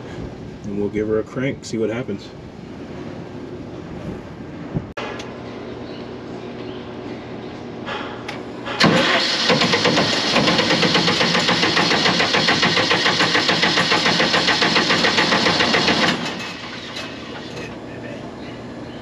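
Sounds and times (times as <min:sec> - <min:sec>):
diesel engine cranking: 0:08.8 - 0:17.8.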